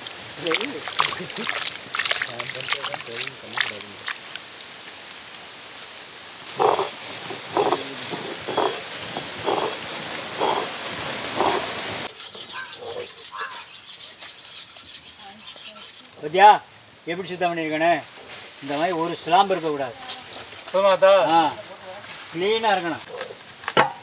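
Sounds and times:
knife scraping fish scales: 6.6s - 9.8s, 11.4s - 16.1s.

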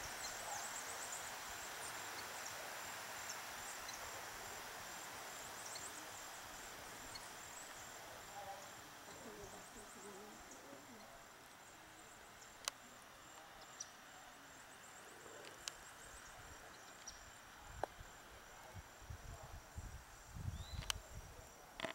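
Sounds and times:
insects trilling: 0.0s - 21.9s.

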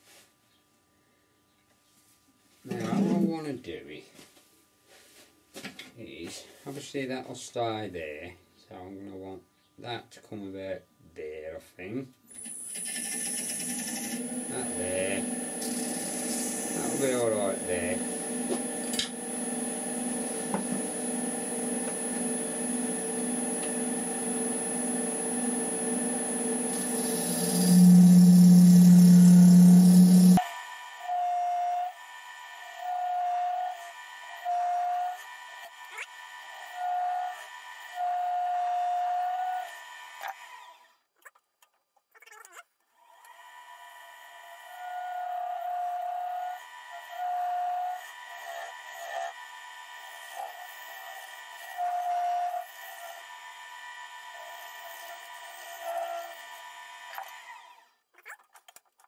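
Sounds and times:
wood lathe motor humming: 12.4s - 40.7s, 43.1s - 57.8s.

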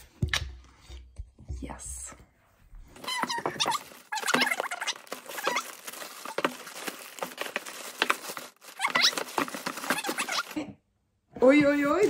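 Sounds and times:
plastic bag crinkling: 3.0s - 10.6s.

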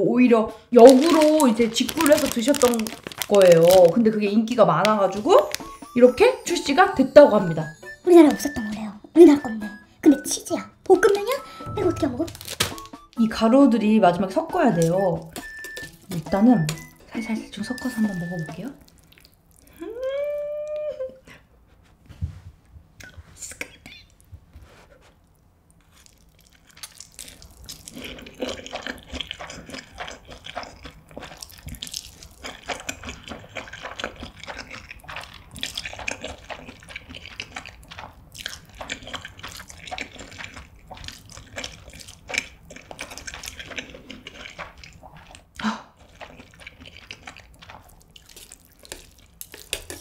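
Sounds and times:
slurping and chewing noodles: 0.8s - 4.1s, 14.7s - 19.9s, 25.0s - 50.0s
chopsticks tossing noodles in bowl: 46.0s - 50.0s
wet mouth clicks and smacks: 46.2s - 50.0s.

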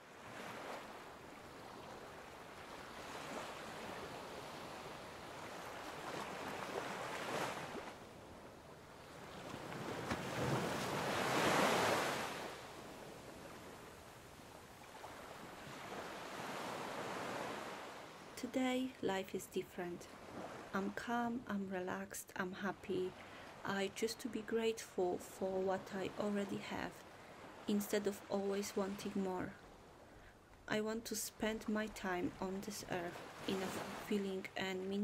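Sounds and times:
waves on pebble shore: 0.2s - 8.0s, 9.0s - 12.7s.

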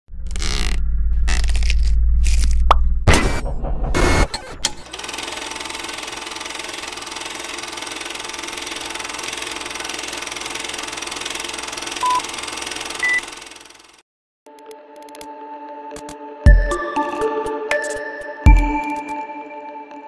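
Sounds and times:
film projector clatter: 4.7s - 14.0s.

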